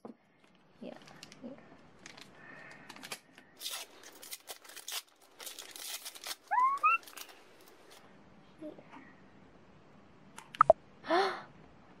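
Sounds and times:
wrapping paper crinkling and tearing: 0:02.0 - 0:08.0.

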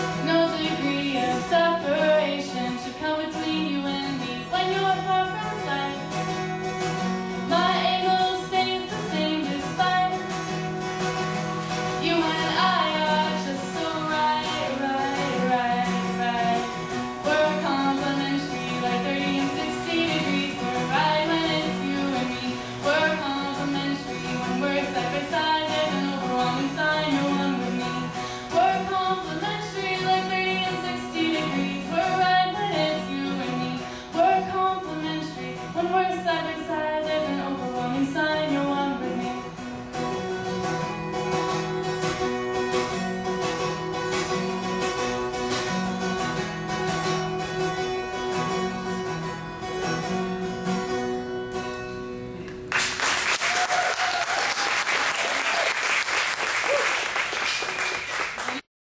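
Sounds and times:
woman singing: 0:00.0 - 0:06.4, 0:07.2 - 0:10.9, 0:11.7 - 0:40.0
acoustic guitar strumming: 0:00.0 - 0:52.7
audience applauding: 0:52.6 - 0:58.7.

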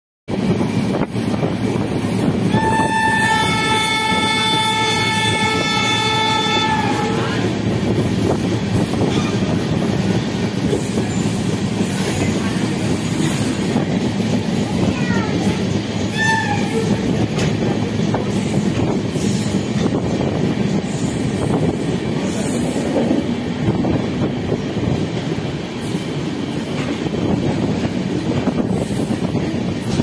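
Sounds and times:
train wheels rumbling on rail: 0:00.3 - 0:30.0
train horn: 0:02.5 - 0:07.5, 0:16.1 - 0:17.1.

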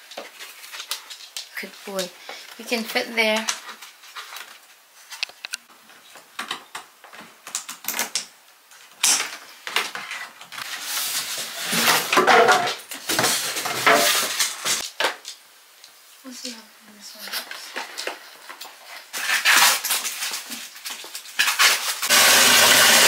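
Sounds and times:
cardboard scraping and rustling: 0:09.9 - 0:14.8, 0:17.4 - 0:22.1.

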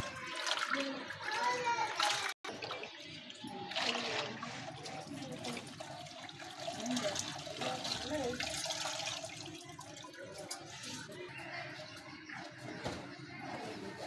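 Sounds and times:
water dripping into a bucket: 0:00.0 - 0:10.6
water splashing in a bucket: 0:00.0 - 0:11.0.

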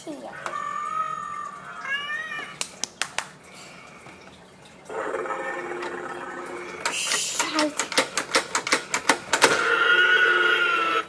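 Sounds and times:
toy electronic growls: 0:04.9 - 0:07.1, 0:09.5 - 0:11.0
plastic clicks: 0:06.8 - 0:09.6.

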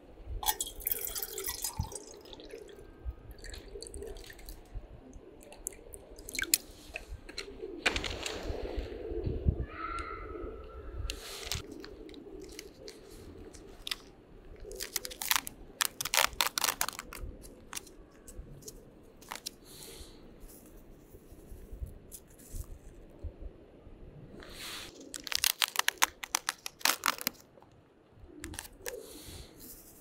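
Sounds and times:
plastic packet crinkling and tearing: 0:11.1 - 0:19.5, 0:24.9 - 0:27.7
paper bag rustling: 0:11.2 - 0:17.9, 0:24.7 - 0:27.5.

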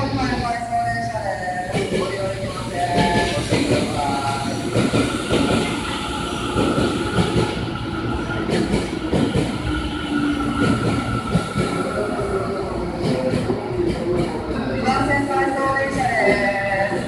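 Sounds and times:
public-address voice: 0:00.0 - 0:06.6
electric train high whine: 0:00.0 - 0:17.0
train rumbling and clatter: 0:00.0 - 0:17.0.

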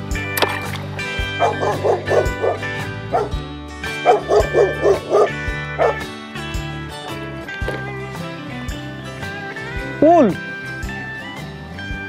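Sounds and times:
background music with steady beat: 0:00.0 - 0:12.0
dog barking: 0:01.3 - 0:03.4, 0:04.0 - 0:06.1.

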